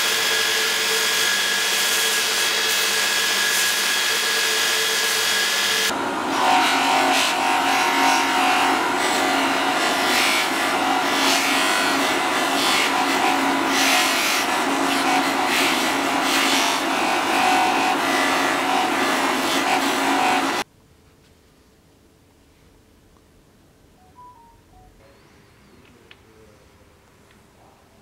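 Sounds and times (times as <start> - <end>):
bench grinder motor humming: 0.0 - 20.6
wood rasping on grinding wheel: 0.0 - 20.6.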